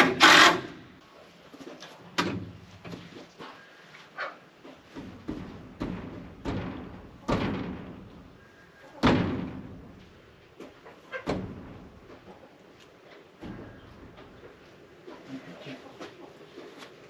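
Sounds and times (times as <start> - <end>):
knocks on wooden post: 5.0 - 7.9.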